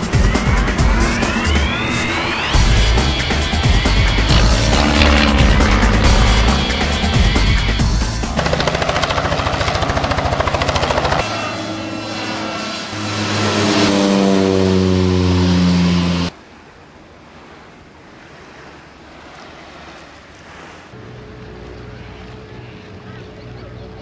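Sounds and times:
helicopter rotor chop: 0.0 - 16.3
propeller plane passing overhead: 0.0 - 16.6, 17.3 - 24.0
low steady engine hum: 2.5 - 24.0.

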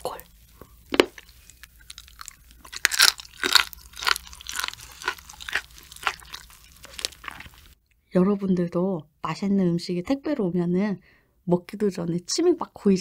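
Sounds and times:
chewing crunchy raw fish: 1.4 - 7.8.

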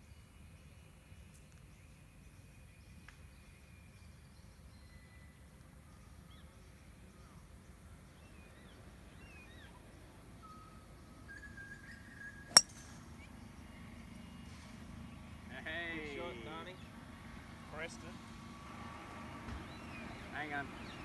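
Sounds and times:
golf club striking ball: 12.5 - 12.9.

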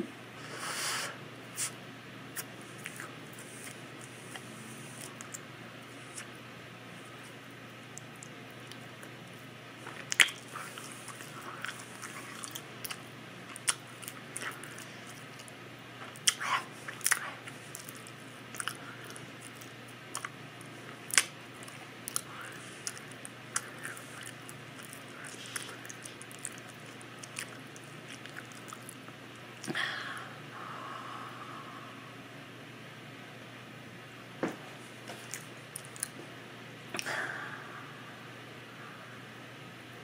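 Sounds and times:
open-mouthed chewing: 1.6 - 6.4, 7.0 - 29.8, 35.1 - 36.2.

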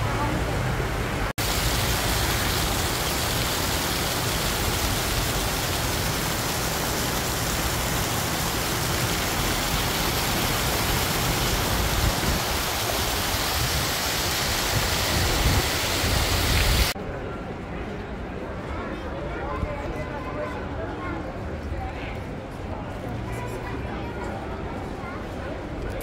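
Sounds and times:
fountain jets splashing: 0.0 - 17.0
river water rushing: 0.6 - 17.0.

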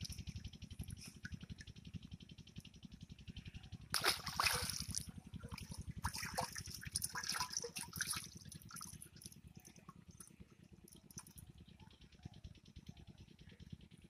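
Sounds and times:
low pulsing hum: 0.0 - 14.0
water splashing in metal pot: 4.0 - 5.0, 6.0 - 8.9.

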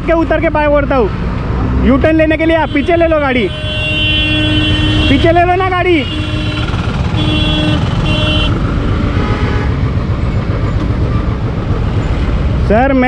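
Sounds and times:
idling engines and traffic rumble: 0.0 - 13.0
vehicle horn tooting: 2.6 - 8.6, 9.2 - 9.8.

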